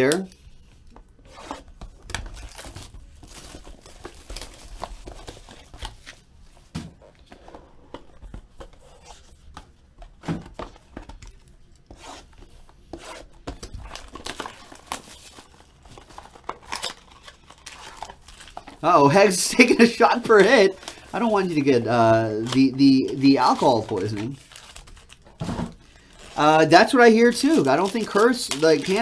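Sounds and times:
wrapping crinkling and tearing: 0.0s - 6.3s, 13.6s - 29.0s.

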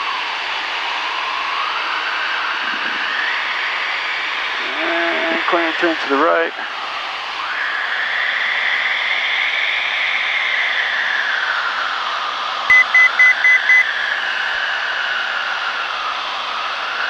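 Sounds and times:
aircraft engine drone: 0.0s - 17.0s
short high beeps: 12.7s - 13.8s.

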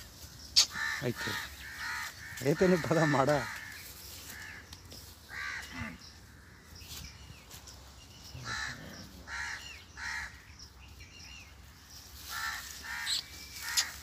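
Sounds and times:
crows cawing: 0.6s - 6.6s, 8.4s - 10.5s, 12.2s - 14.0s.

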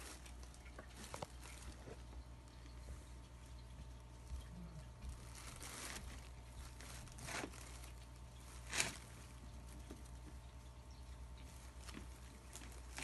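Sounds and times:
plastic bag crinkling: 0.0s - 2.6s, 5.0s - 10.2s, 11.5s - 13.0s.

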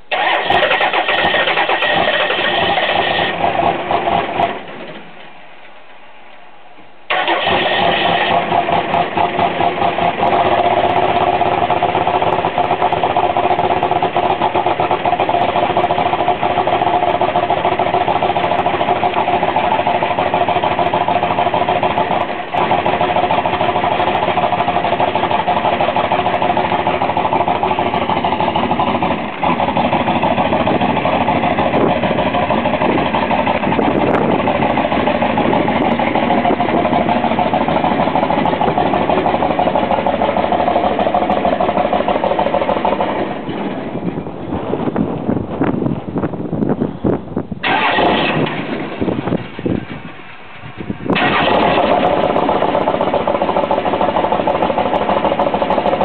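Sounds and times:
diesel engine running: 0.0s - 5.3s, 7.1s - 56.0s
starter motor cranking: 0.1s - 4.6s, 7.1s - 11.4s, 47.6s - 49.8s, 51.1s - 55.5s.

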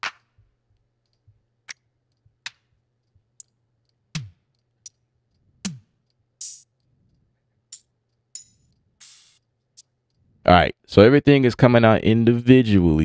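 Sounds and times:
drum machine clap: 4.2s - 4.4s, 5.7s - 6.6s
drum machine hi-hat hits: 4.2s - 4.4s, 5.6s - 6.7s, 8.4s - 9.4s.

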